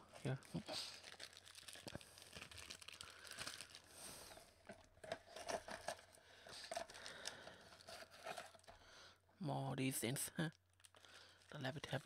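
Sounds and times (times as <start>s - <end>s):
candy box crinkling: 0.2s - 8.8s, 10.8s - 12.0s.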